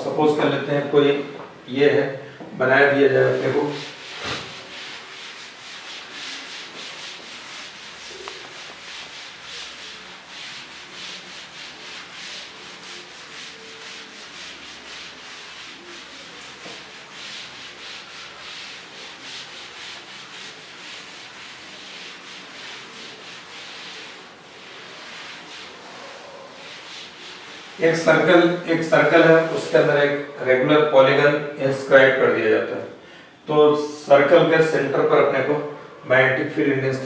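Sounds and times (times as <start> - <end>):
cloth scrubbing chalkboard: 2.7 - 32.3.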